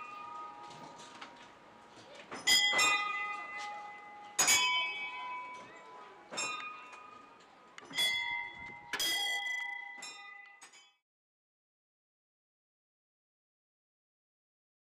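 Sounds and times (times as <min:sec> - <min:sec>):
metal bells ringing: 0:02.4 - 0:07.3, 0:07.9 - 0:10.9.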